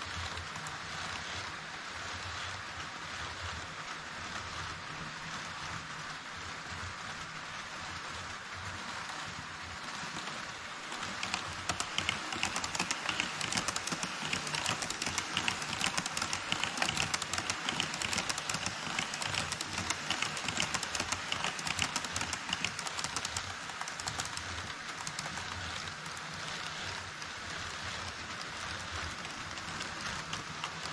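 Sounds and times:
model train wheels clattering: 0:00.0 - 0:30.9.

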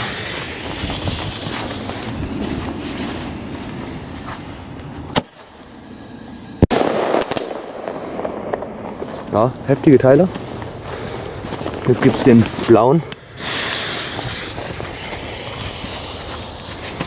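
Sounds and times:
firework tube hissing: 0:00.0 - 0:09.3, 0:12.1 - 0:17.0
loud echoing firework bang: 0:06.6 - 0:09.5
shell launch crack: 0:06.6 - 0:09.5.

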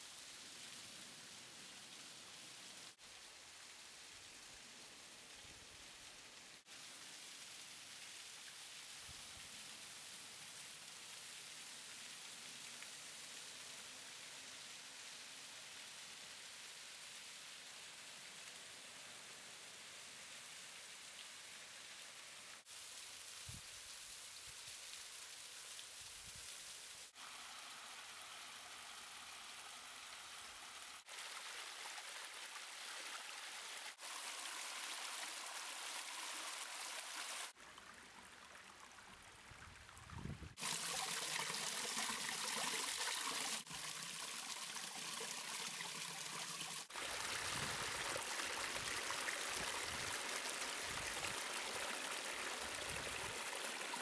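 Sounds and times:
water trickling over rock: 0:27.8 - 0:54.0.

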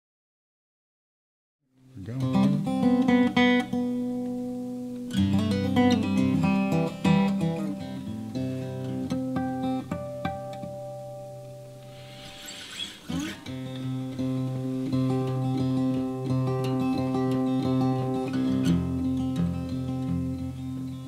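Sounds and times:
acoustic guitar playing: 0:01.8 - 0:21.0.

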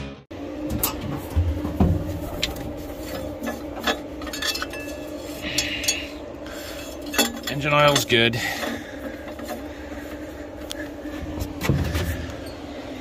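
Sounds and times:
steady low hum: 0:00.3 - 0:13.0.

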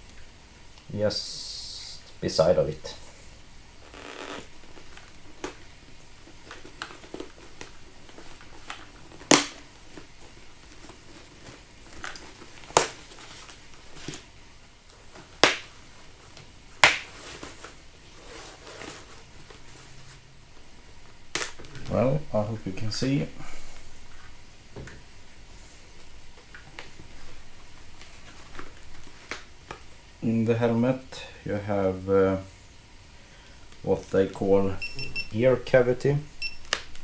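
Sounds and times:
rustling of helmet padding: 0:03.9 - 0:22.1, 0:23.5 - 0:30.0.

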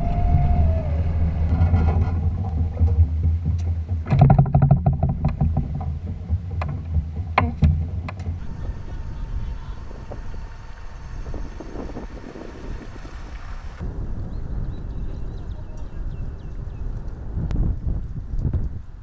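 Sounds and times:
low machine hum: 0:00.0 - 0:02.5, 0:08.3 - 0:14.0
wind: 0:00.0 - 0:19.0
water churning: 0:08.4 - 0:13.8.

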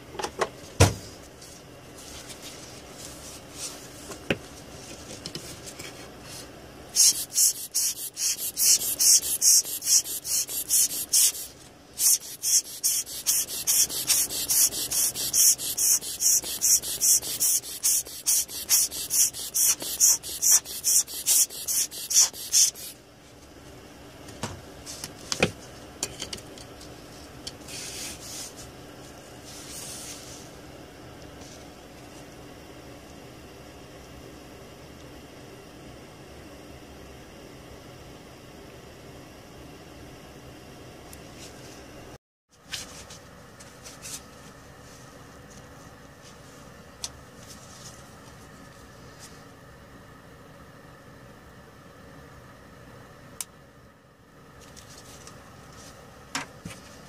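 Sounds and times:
brush scrubbing: 0:07.0 - 0:23.0.

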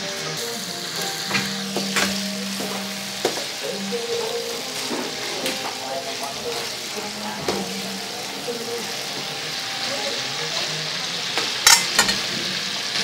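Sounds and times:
food sizzling in hot oil: 0:00.0 - 0:13.0
metal skimmer clicking on pan: 0:11.6 - 0:12.2.

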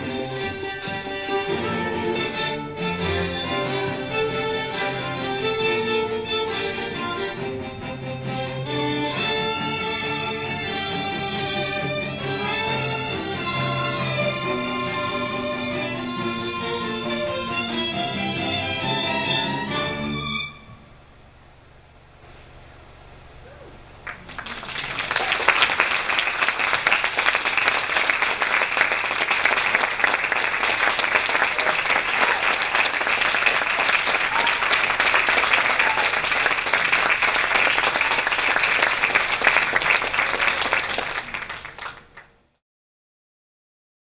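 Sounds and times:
audience applauding: 0:23.9 - 0:42.4.

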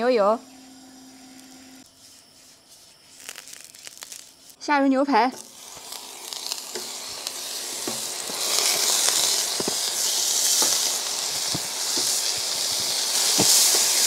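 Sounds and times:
steaks sizzling on a griddle: 0:05.4 - 0:14.0.

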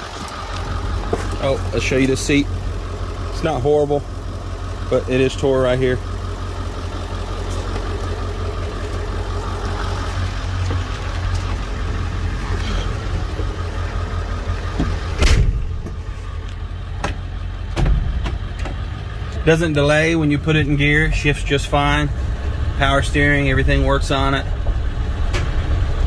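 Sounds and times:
diesel engine idling: 0:00.0 - 0:26.0
sharp thump: 0:14.8 - 0:16.0, 0:17.8 - 0:18.4.

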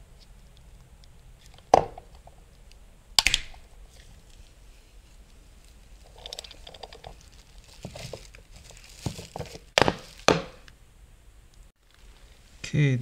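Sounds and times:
hand tools clicking and rattling: 0:06.1 - 0:07.3
sharp knocks: 0:09.8 - 0:10.7.

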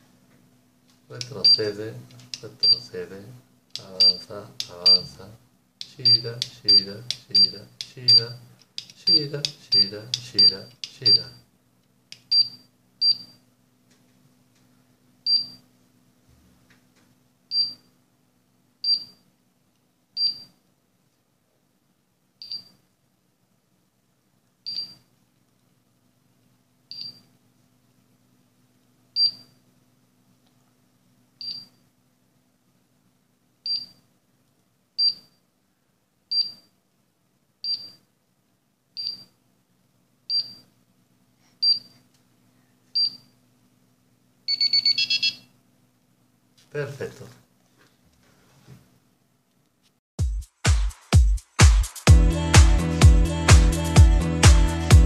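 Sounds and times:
robot buzzer beeping: 0:44.5 - 0:45.4.

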